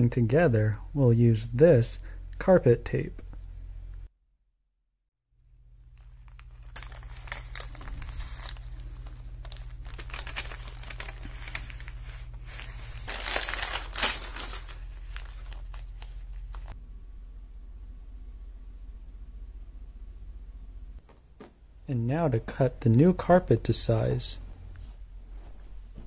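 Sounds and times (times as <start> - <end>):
steady low hum: 0.0 - 4.1, 5.4 - 26.0
carpet tape crinkling and tearing: 5.8 - 16.8.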